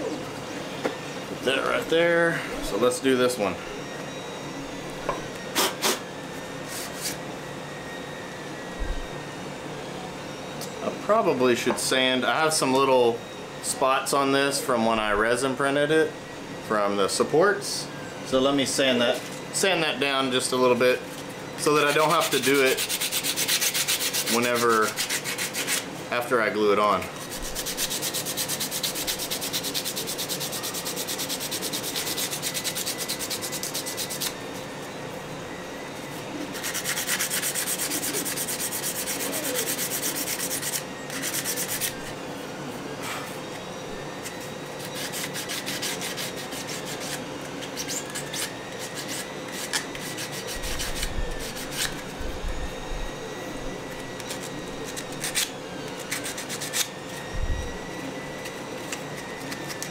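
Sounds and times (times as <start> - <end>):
sandpaper rubbing: 6.6 - 7.2, 21.8 - 25.9, 27.2 - 34.6, 36.5 - 42.1, 44.2 - 52.2, 54.2 - 56.9.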